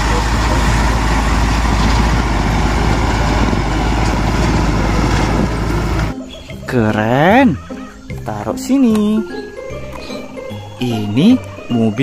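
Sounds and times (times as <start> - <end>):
truck diesel engine rumbling: 0.0 - 6.2.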